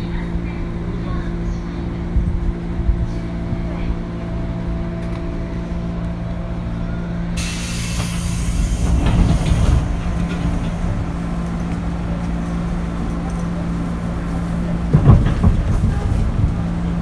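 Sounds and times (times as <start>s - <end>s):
train motor hum: 0.0s - 17.0s
loud hiss with rumble: 7.4s - 10.0s.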